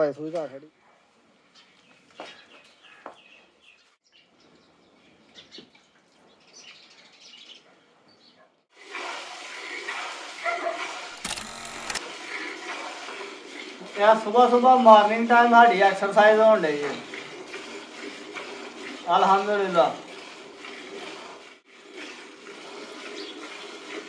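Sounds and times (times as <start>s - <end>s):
milk squirting into steel bucket: 8.8s - 24.0s.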